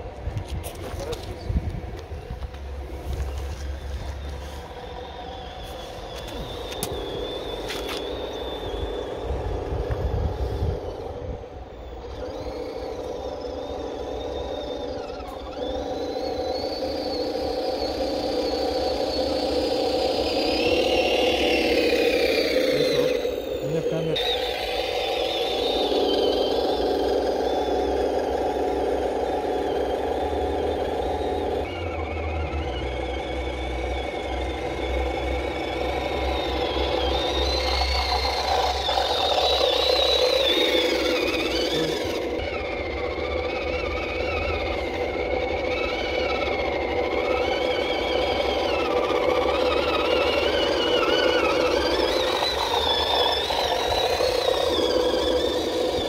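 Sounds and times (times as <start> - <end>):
model truck motor whine: 0.0 - 56.0
truck driving through water: 24.3 - 56.0.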